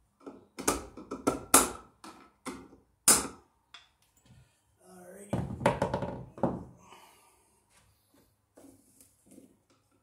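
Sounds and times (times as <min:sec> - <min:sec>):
hammer driving nails into wood: 0:00.2 - 0:03.4.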